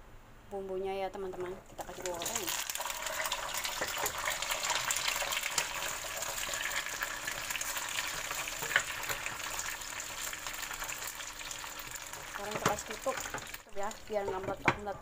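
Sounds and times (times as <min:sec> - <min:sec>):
vegetables sizzling in hot oil: 0:01.6 - 0:14.8
wooden spatula stirring: 0:11.8 - 0:15.0.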